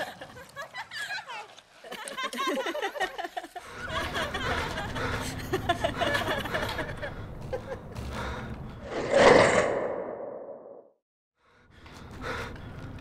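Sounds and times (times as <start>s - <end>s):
people giggling and laughing: 0.0s - 7.9s
low rumble: 8.8s - 10.9s.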